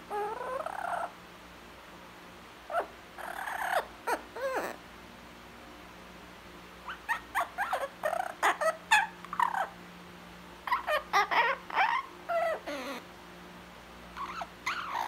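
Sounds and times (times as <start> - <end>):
parrot squeaky calls: 0.1 - 1.1, 2.7 - 4.8, 6.8 - 9.8, 10.6 - 13.1, 14.2 - 15.0.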